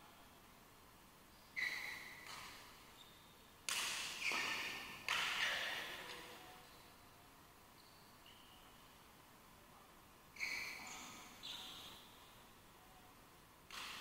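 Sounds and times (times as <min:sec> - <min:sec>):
racket hitting shuttlecock: 0:03.7 - 0:06.3, 0:13.7 - 0:14.0.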